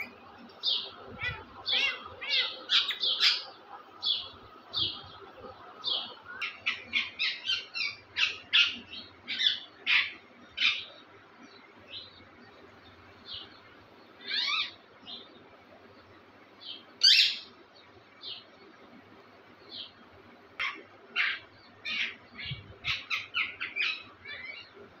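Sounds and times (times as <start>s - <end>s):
parakeets chirping and squawking: 0.0s - 11.0s, 14.2s - 14.8s, 17.0s - 17.6s, 20.6s - 24.8s.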